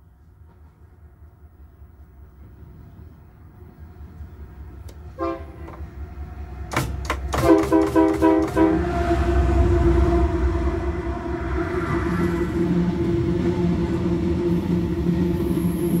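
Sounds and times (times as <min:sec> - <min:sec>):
locomotive rumble: 0:00.0 - 0:16.0
locomotive air horn blasts: 0:05.1 - 0:05.8, 0:07.3 - 0:09.2.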